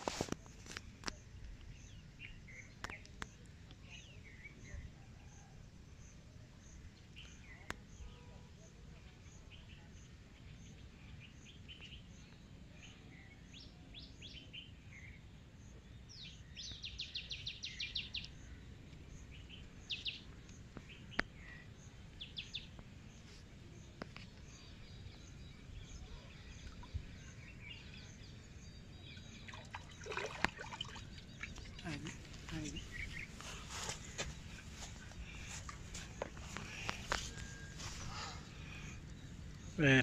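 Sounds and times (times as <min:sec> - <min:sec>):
low steady background noise: 0:00.0 - 0:40.0
birds chirping: 0:16.1 - 0:40.0.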